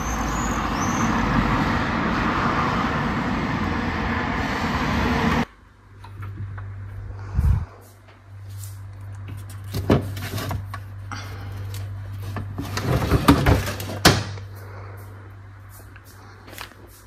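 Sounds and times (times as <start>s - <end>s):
steady low hum: 5.4s - 17.0s.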